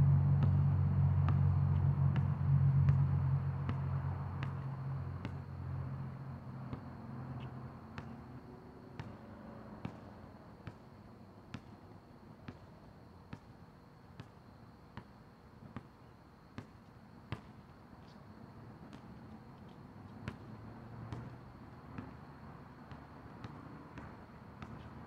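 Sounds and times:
low hum: 0.0 - 5.3
basketball bouncing on asphalt: 0.3 - 18.2, 18.8 - 25.0.

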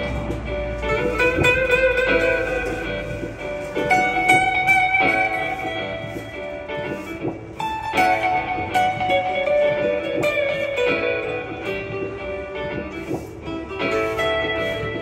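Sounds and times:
acoustic guitar picked notes: 0.0 - 15.0.

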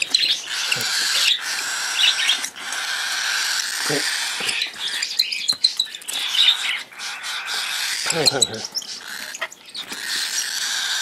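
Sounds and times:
chicks raspy hissing calls: 0.0 - 5.2, 6.1 - 11.0
high chick chirps: 0.0 - 11.0.

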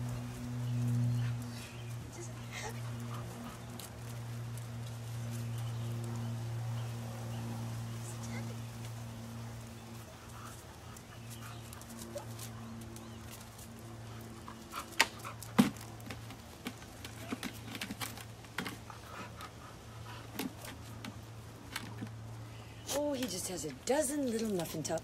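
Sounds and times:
low hum: 0.0 - 24.7
dog panting: 0.9 - 4.6, 9.8 - 15.6, 18.7 - 21.3.

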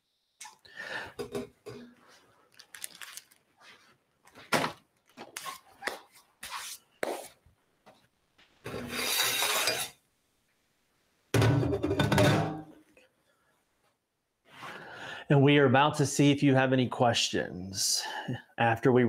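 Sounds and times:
plate wiped on steel table: 6.4 - 7.4, 8.7 - 10.0.

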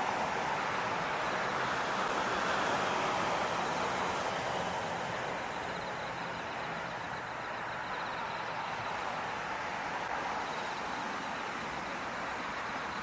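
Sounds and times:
faint high whine: 5.2 - 13.0.

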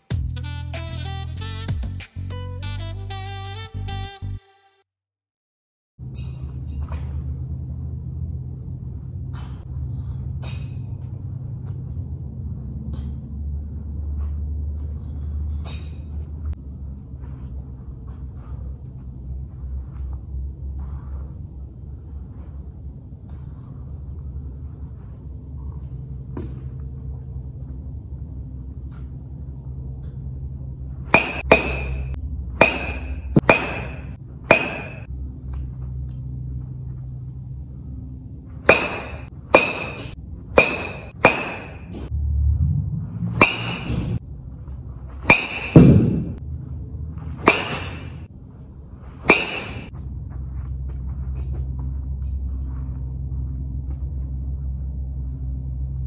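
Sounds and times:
steady low hum: 6.0 - 56.0
baseball bat cracking balls: 31.0 - 36.3, 38.5 - 42.1, 43.3 - 46.6, 47.2 - 48.3, 49.0 - 52.8.

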